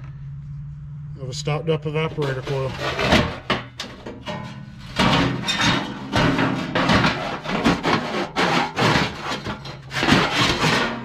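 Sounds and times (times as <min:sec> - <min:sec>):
blower wheel rattling in metal housing: 0:02.2 - 0:11.0.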